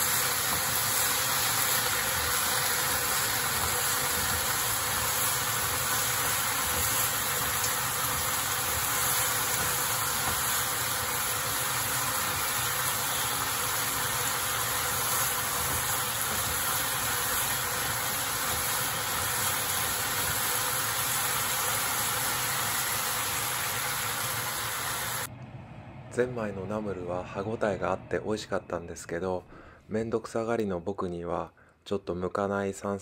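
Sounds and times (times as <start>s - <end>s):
food sizzling in a frying pan: 0.0s - 25.3s.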